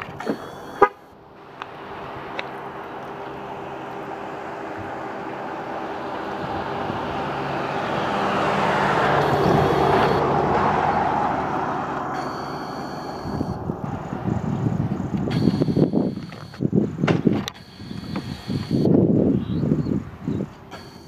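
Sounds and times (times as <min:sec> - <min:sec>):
vehicle passing by: 0:00.0 - 0:16.9.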